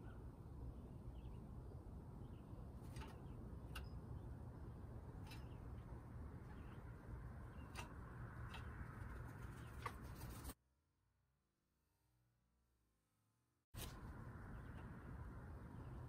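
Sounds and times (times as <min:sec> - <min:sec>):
faint small bird chirps: 0:01.1 - 0:04.4
woodpecker pecking: 0:02.7 - 0:10.6.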